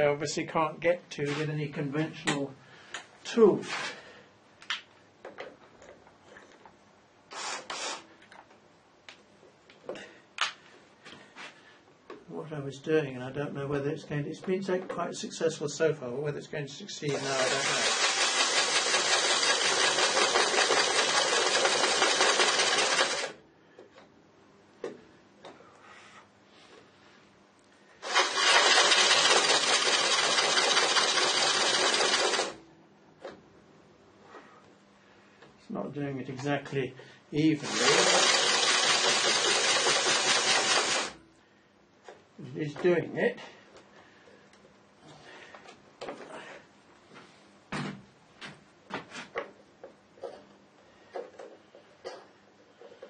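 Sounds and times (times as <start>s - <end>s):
drill bit scraping plastic: 17.1s - 23.3s, 28.0s - 32.6s.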